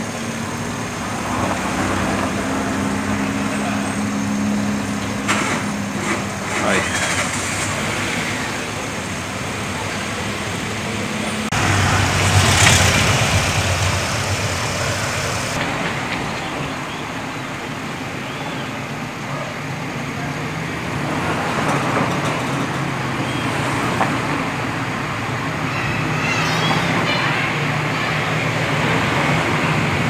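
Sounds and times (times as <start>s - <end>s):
washing machine running: 10.0s - 15.6s.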